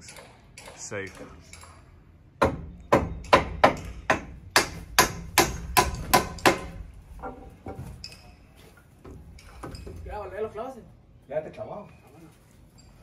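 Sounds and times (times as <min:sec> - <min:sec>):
hammer driving nails into wood: 0:02.4 - 0:07.4.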